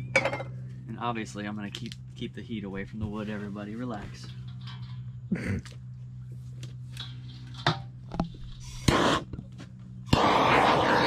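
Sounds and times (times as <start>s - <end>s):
gas torch flame hissing: 8.6s - 9.4s, 10.1s - 11.0s.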